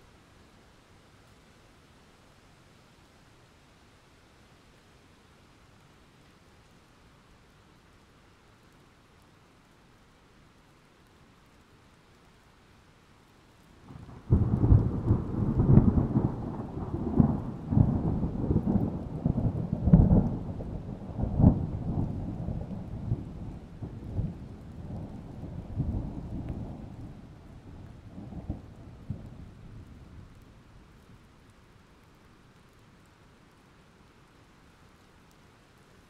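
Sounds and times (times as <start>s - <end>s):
thunderclap rolling into rumble: 13.9s - 30.4s.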